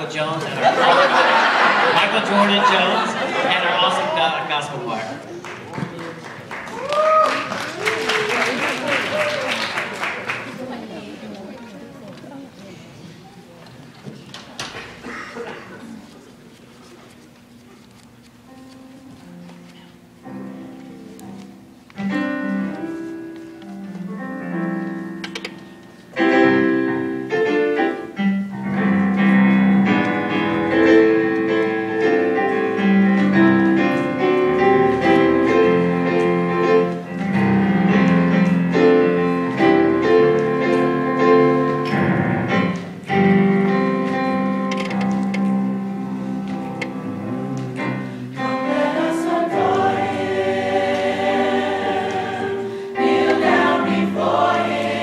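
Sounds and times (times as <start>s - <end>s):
slow piano chords: 18.4s - 55.0s.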